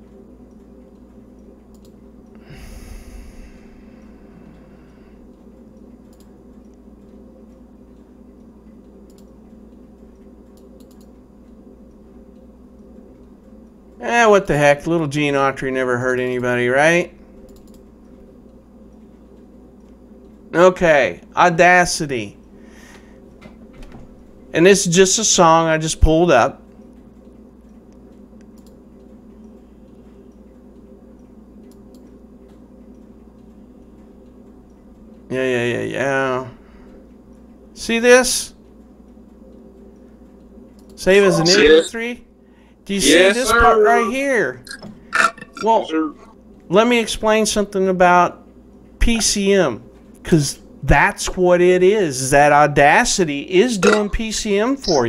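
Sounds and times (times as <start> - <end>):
low steady hum: 0.0 - 55.0
computer mouse clicks: 0.5 - 2.0, 5.3 - 8.1, 8.7 - 12.9, 17.4 - 20.4, 26.8 - 30.8, 31.6 - 33.5, 40.7 - 41.0
faint computer mouse clicks: 1.7 - 2.0, 6.1 - 7.2, 8.7 - 9.4, 10.5 - 11.6, 17.4 - 18.2, 27.9 - 30.5, 31.6 - 33.5.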